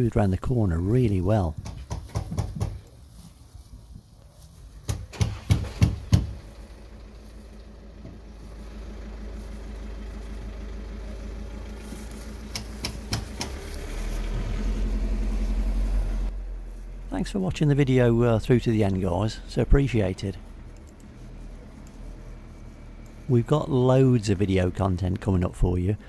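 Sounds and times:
vehicle engine humming: 0.0 - 26.0
sharp knocks and clicks: 1.6 - 2.9, 4.8 - 6.5, 12.5 - 13.7.

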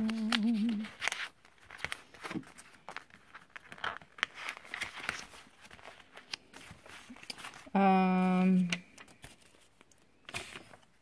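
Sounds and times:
person humming: 0.0 - 0.9
paper rustling and crinkling: 0.0 - 11.0.

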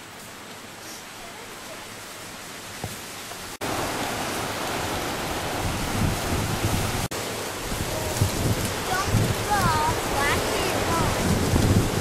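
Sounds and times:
ocean surf rushing: 0.7 - 12.0
wind buffeting microphone: 3.7 - 12.0.

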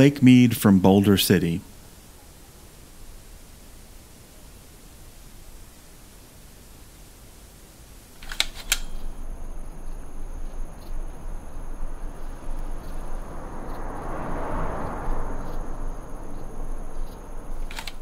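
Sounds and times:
faint high whine: 0.0 - 18.0
outdoor hiss: 0.0 - 18.0
sharp clicks: 8.2 - 9.2, 17.0 - 18.0
low rumble: 8.8 - 17.7.

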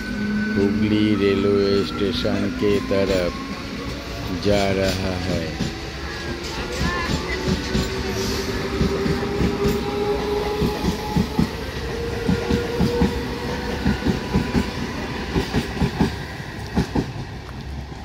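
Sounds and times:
train wheels clacking over rail joints: 3.8 - 17.8.

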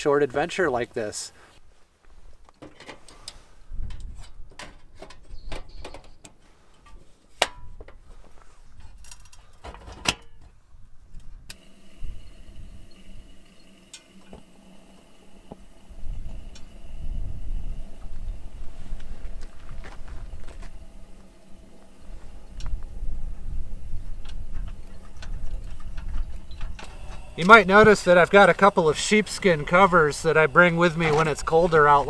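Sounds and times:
camp gear clicks and clatter: 2.3 - 10.6
faint steady hum: 11.5 - 32.0.

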